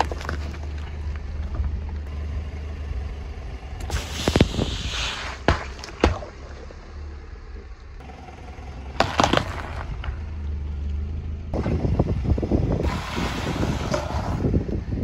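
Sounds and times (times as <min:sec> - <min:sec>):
eggs cracking under tyre: 0:00.0 - 0:02.1, 0:09.0 - 0:11.0
slowly moving car rumble: 0:00.0 - 0:15.0
rough rushing noise: 0:03.7 - 0:06.5, 0:11.6 - 0:14.8.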